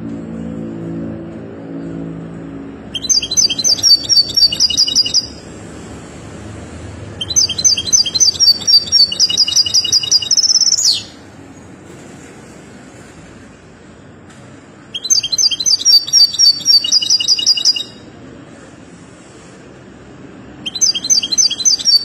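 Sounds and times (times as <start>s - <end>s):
goldfinch singing: 2.9s - 5.4s, 7.2s - 11.2s, 14.9s - 18.0s, 20.6s - 22.0s.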